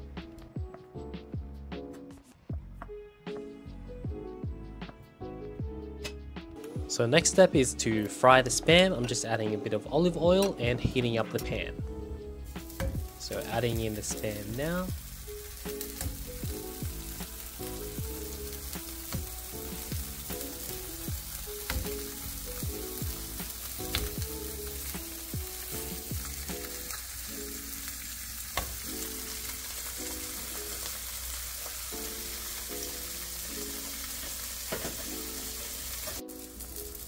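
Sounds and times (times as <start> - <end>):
meat sizzling in oil: 12.3 - 37.0.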